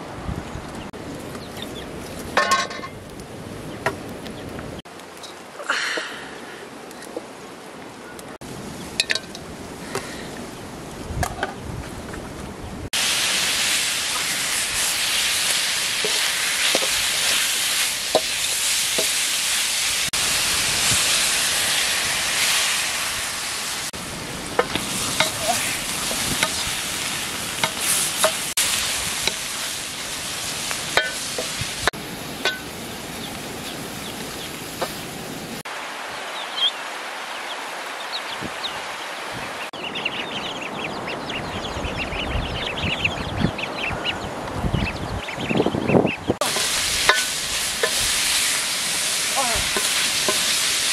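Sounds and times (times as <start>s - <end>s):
meat sizzling in hot oil: 13.0s - 35.2s, 46.4s - 50.9s.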